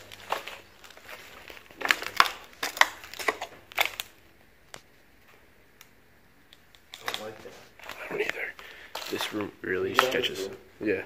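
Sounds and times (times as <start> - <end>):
footsteps crunching on debris: 0.0 - 4.2, 7.0 - 10.4.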